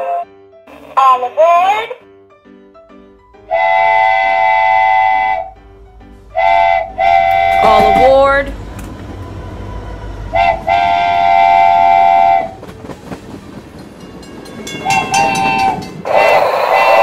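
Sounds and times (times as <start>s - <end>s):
train horn: 3.4s - 12.7s, 14.8s - 17.0s
rail clatter: 5.6s - 17.0s
loud noisy sound: 6.3s - 12.5s.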